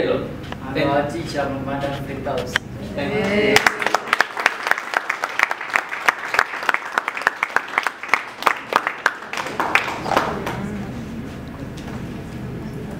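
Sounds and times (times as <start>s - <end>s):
small audience applauding: 3.2s - 10.8s.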